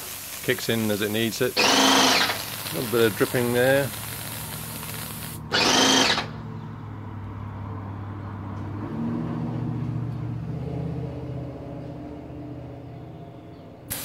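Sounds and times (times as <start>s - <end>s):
spray hissing from gun tip: 0.0s - 5.5s
pump motor humming: 0.0s - 6.4s.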